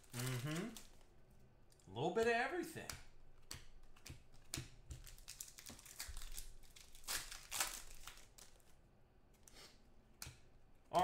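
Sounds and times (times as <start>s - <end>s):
foil wrapper crinkling: 0.0s - 1.1s, 5.0s - 8.8s.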